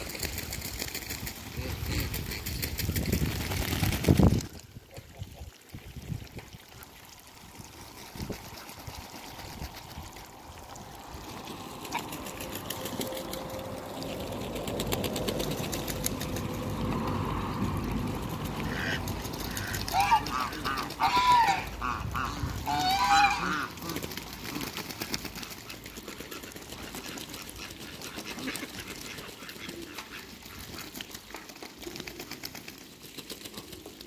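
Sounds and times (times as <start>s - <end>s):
water splashing: 0.0s - 34.0s
ducks clicking bills: 18.3s - 34.0s.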